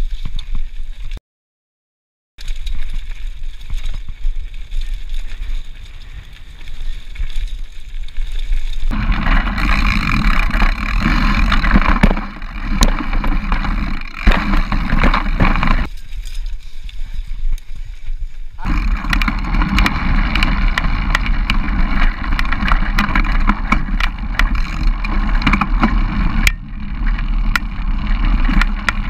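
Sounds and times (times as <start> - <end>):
bike rattling over roots: 0.0 - 1.2, 2.4 - 29.0
tyres rolling over dry leaves: 2.4 - 29.0
wind buffeting microphone: 8.9 - 15.9, 17.0 - 29.0.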